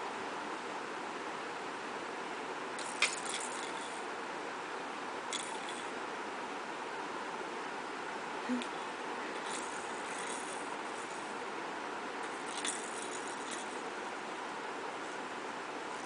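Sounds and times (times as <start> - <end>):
steady hiss: 0.0 - 16.0
plastic toys rattling: 2.8 - 4.0, 5.3 - 5.9, 9.3 - 11.2, 12.2 - 13.8.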